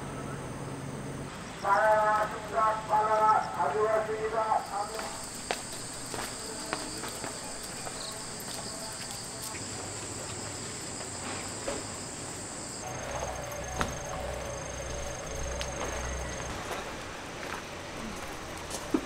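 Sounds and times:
cicadas buzzing: 0.0s - 19.0s
fast pulsing insect trill: 0.1s - 17.2s
low hum: 9.7s - 19.0s.

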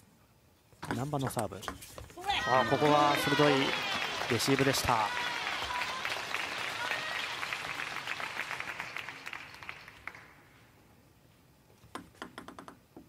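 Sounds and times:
spectators clapping: 2.2s - 10.5s.

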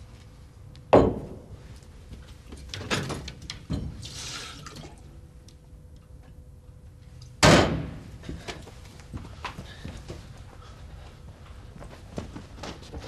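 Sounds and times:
knocks: 1.0s - 1.4s.

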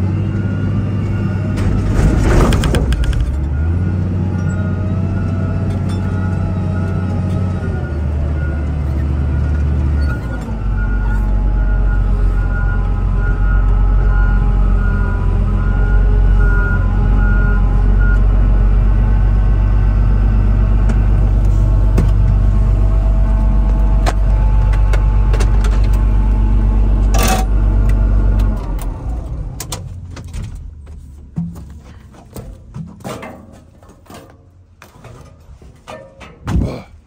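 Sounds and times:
diesel engine idling: 2.9s - 31.2s.

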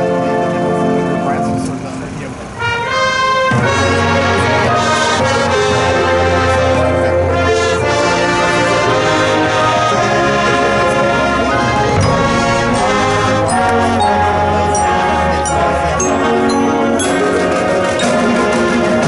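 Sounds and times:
marching band brass chords: 2.5s - 19.0s
high ringing notes: 11.4s - 18.5s.

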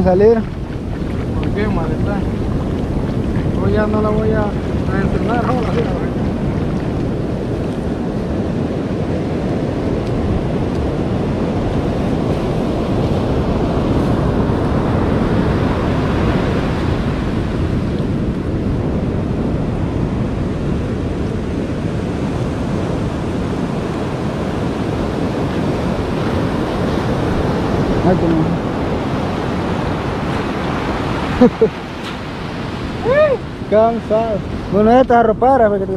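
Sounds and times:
water swirling around feet: 0.0s - 7.9s
ocean surf breaking: 0.0s - 35.9s
wind buffeting microphone: 0.0s - 35.9s.

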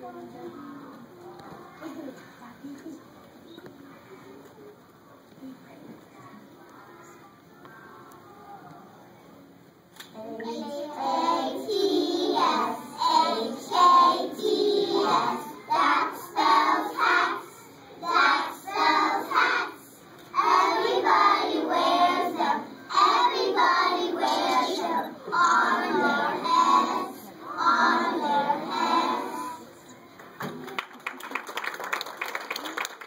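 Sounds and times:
children singing in unison: 10.4s - 29.7s.

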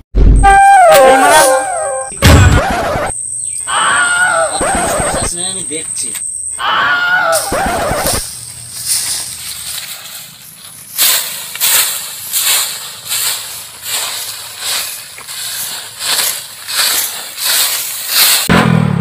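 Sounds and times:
broom sweeping dry leaves: 8.2s - 18.5s.

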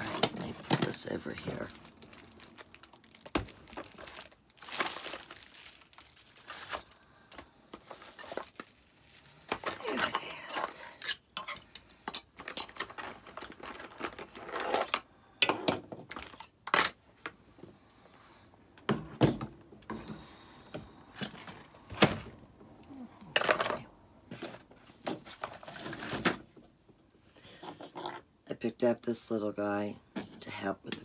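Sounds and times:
craft supplies clicking and rustling: 0.0s - 5.3s, 9.4s - 17.0s.

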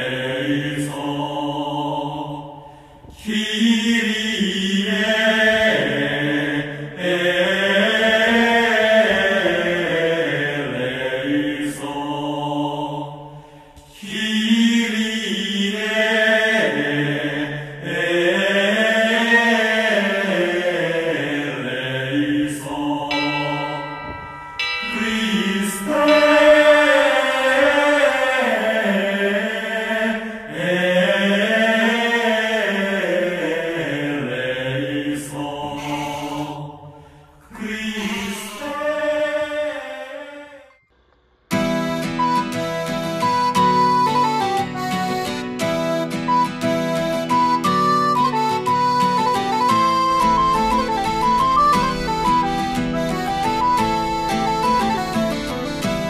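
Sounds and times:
low voice chanting: 14.0s - 40.7s.

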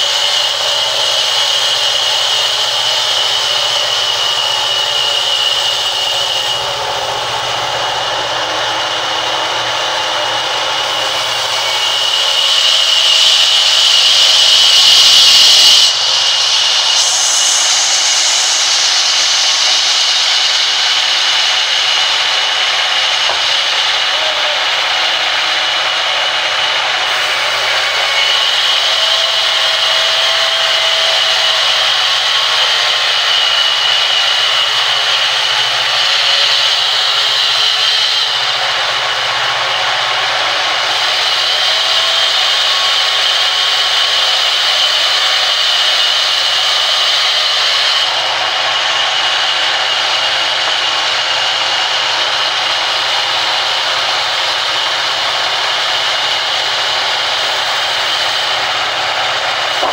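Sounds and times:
band saw ripping log: 59.6s - 59.9s.

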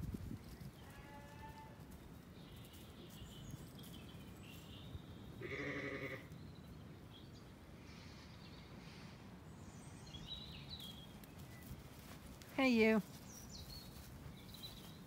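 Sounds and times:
sheep bleating: 0.8s - 1.8s, 5.4s - 6.3s.

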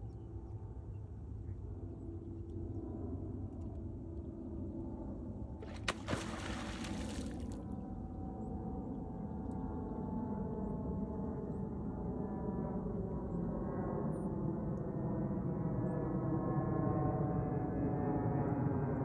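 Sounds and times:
distant engine drone: 5.2s - 9.0s.

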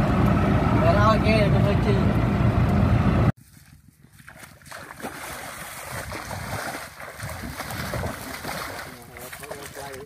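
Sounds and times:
auto-rickshaw engine: 0.0s - 3.3s.

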